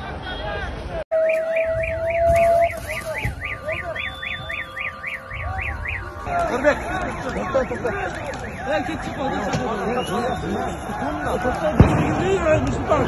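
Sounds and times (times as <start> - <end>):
crowd voices: 0.0 - 13.0
electronic siren warbling: 1.2 - 9.6.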